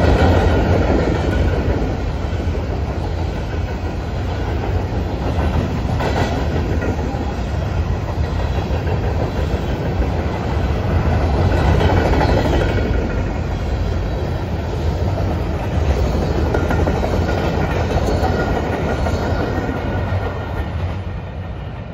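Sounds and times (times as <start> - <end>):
freight train wheels rumbling on rail: 0.0 - 21.9.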